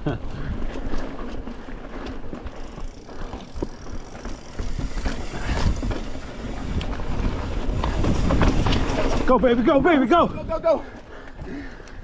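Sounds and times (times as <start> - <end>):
bike rattling clicks and knocks: 0.0 - 10.1
tyres rolling over rock: 0.7 - 10.1
wind rumble on microphone: 3.5 - 10.7.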